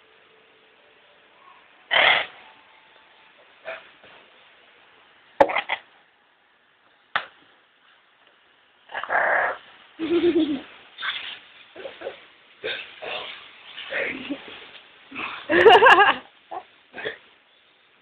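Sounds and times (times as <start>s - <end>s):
parrot making raspy sounds: 1.9s - 2.4s, 8.9s - 9.6s.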